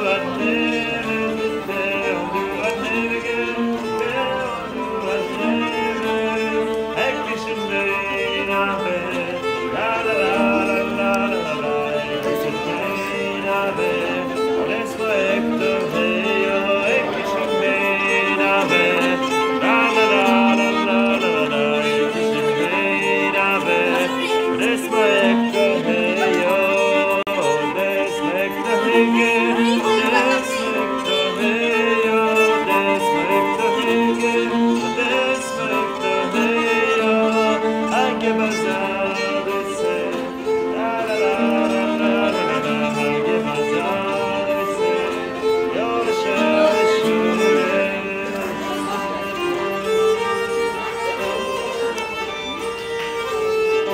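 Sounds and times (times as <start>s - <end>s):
bowed keyed fiddle folk tune: 0.0s - 53.9s.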